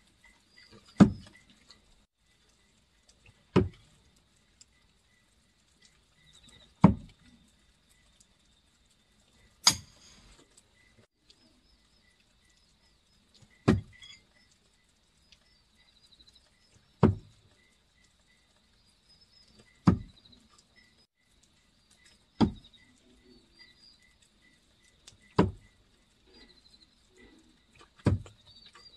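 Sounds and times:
knives thudding into wood: 9.7s - 10.2s.

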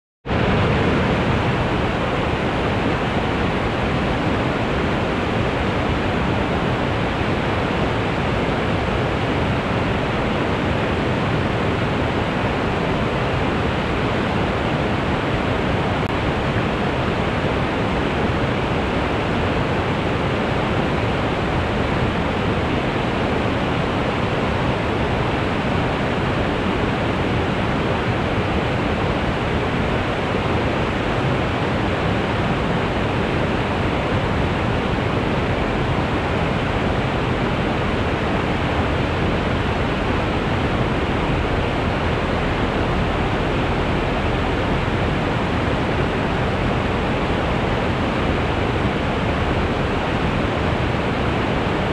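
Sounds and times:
waterfall rushing: 0.3s - 51.9s.

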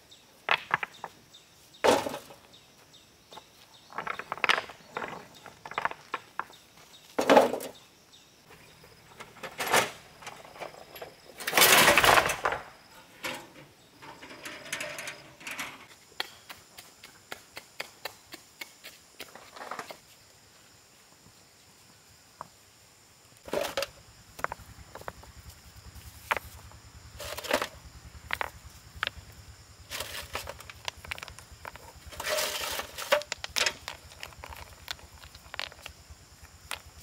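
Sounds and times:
stones knocking together: 0.5s - 1.2s, 3.9s - 6.6s, 27.2s - 29.2s, 29.9s - 37.0s
stones clattering in metal wheelbarrow: 1.8s - 2.5s, 3.9s - 6.5s, 7.1s - 7.8s, 9.2s - 15.9s, 23.4s - 24.0s, 27.2s - 28.6s, 29.9s - 35.9s.

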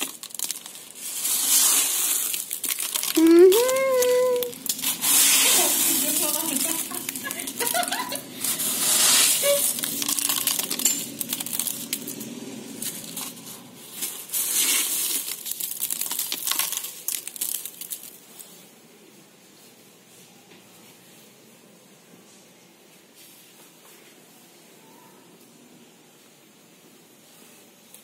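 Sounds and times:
hailstones crunching and rattling: 0.0s - 18.2s.

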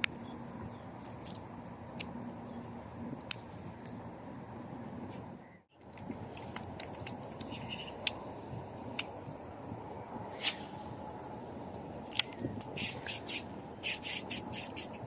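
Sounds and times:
wind noise on microphone: 0.0s - 15.0s
fishing reel hiss: 10.3s - 11.1s, 12.8s - 14.9s.

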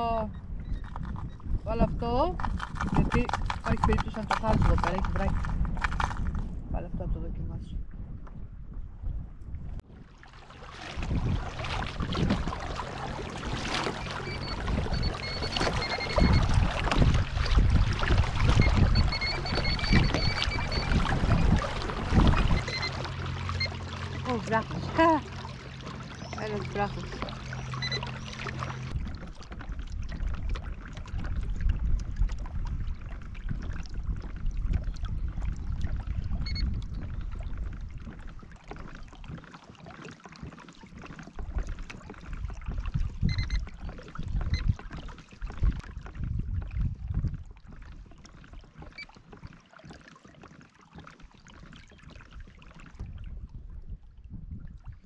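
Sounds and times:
water lapping against kayak hull: 0.0s - 7.2s, 7.8s - 55.0s
wind buffeting microphone: 0.0s - 39.4s, 40.9s - 49.0s, 52.0s - 55.0s.

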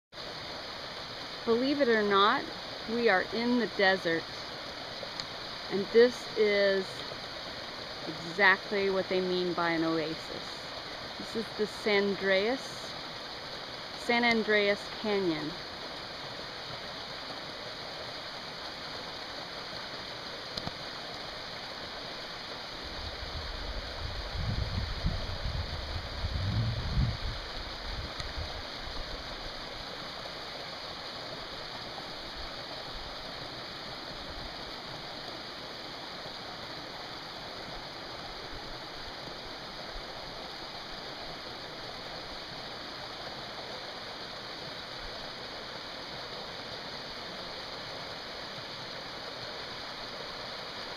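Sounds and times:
creek rushing over rocks: 0.2s - 50.9s.

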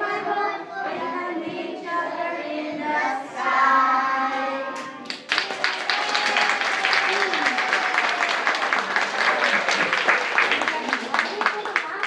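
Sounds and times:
children singing: 0.0s - 5.1s
clapping and applause: 4.8s - 12.0s.

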